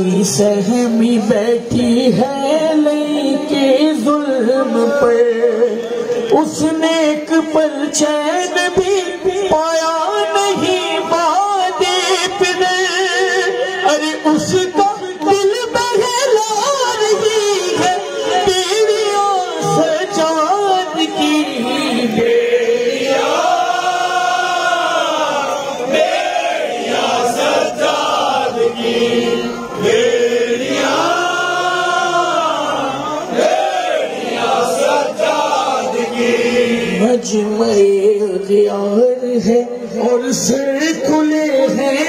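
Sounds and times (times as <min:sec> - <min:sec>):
man chanting into a microphone: 0:00.0 - 0:22.8, 0:36.9 - 0:42.0
crowd chanting: 0:17.6 - 0:37.2.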